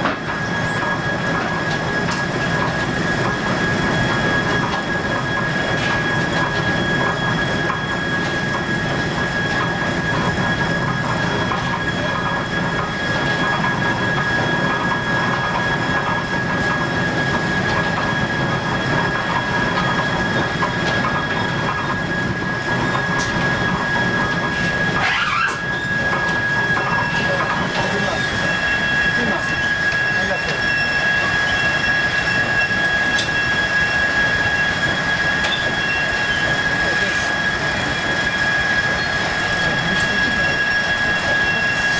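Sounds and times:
constant high whine: 0.0s - 41.9s
sawmill machinery rattle and rumble: 0.0s - 41.9s
short sliding squeal: 24.6s - 37.1s.

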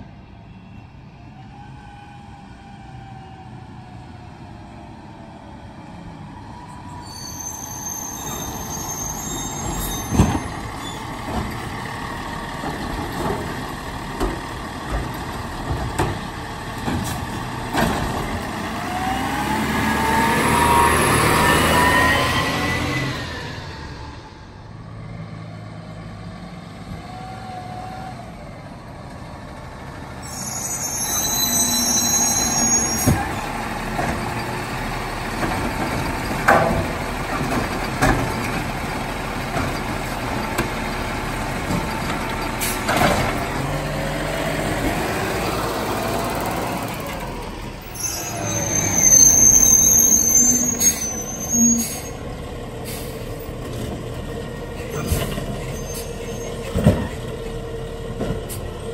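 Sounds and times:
diesel truck engine running: 10.4s - 25.1s
air brakes hissing: 52.8s - 53.4s.

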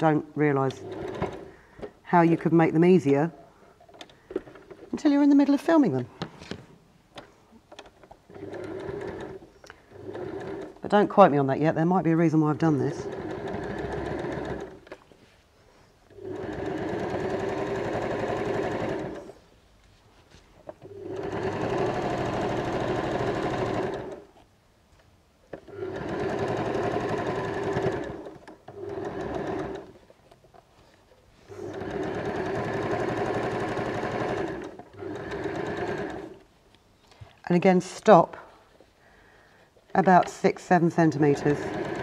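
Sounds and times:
electric sewing machine stitching: 0.7s - 1.5s, 8.3s - 10.8s, 12.9s - 14.9s, 16.1s - 19.4s, 20.8s - 24.3s, 25.6s - 30.0s, 31.5s - 36.4s, 41.0s - 42.0s.

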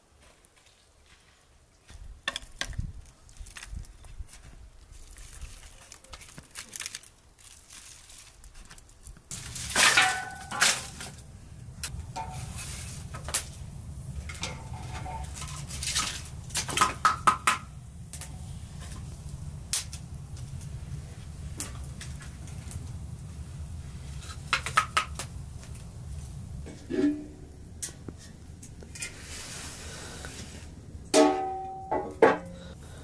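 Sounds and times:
low steady hum: 9.3s - 33.0s.

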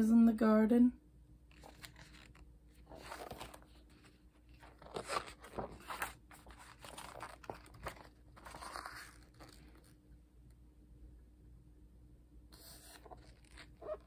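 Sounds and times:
paper pages rustling: 1.5s - 10.0s, 12.6s - 14.0s.

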